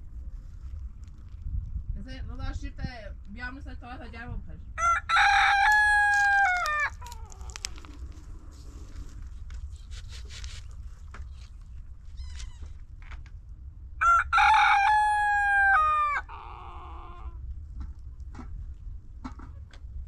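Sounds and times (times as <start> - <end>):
low background rumble: 0.0 - 20.0
rooster crowing: 4.8 - 7.3, 14.0 - 17.4.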